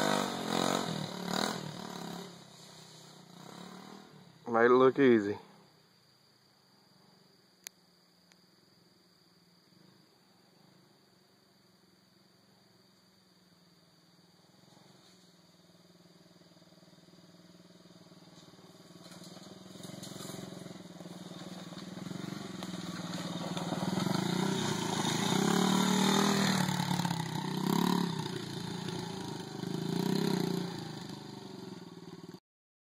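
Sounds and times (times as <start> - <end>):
dirt bike throttle surges: 0.0 - 4.8, 18.3 - 32.4
dirt bike engine approaching: 0.0 - 5.8, 13.4 - 32.4.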